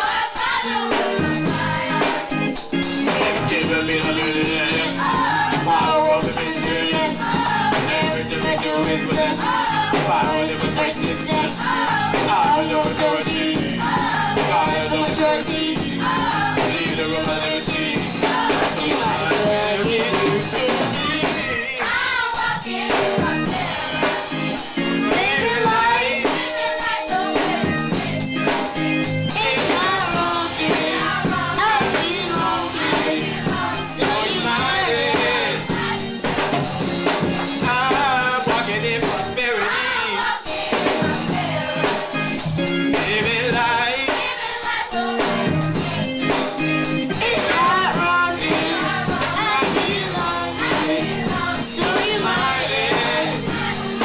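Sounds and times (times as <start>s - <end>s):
choir singing: 0.0s - 42.2s, 43.1s - 54.0s
drums: 0.0s - 54.0s
keyboard: 0.0s - 54.0s
soloist singing on microphone: 3.1s - 13.8s, 16.6s - 21.8s, 33.9s - 35.7s, 37.6s - 40.5s.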